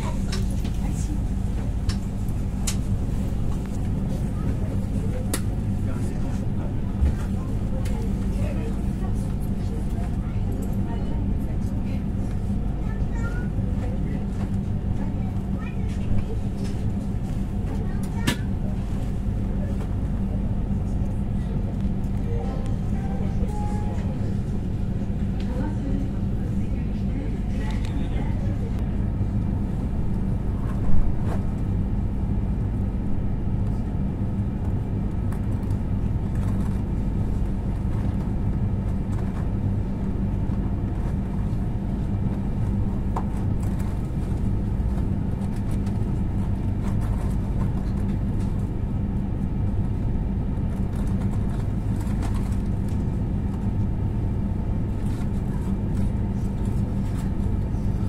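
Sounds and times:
train low drone: 0.0 - 58.0.

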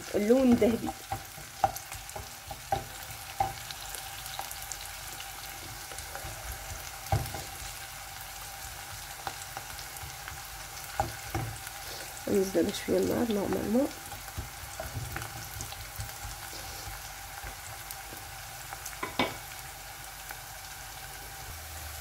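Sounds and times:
onions sizzling in hot oil: 0.0 - 22.0.

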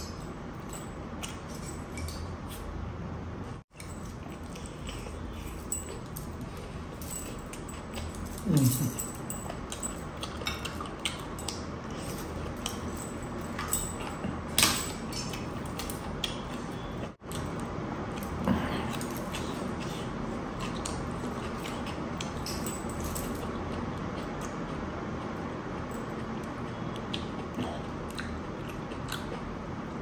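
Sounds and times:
bracelets jangling: 5.6 - 10.1
person chewing crispy food: 14.1 - 22.6.

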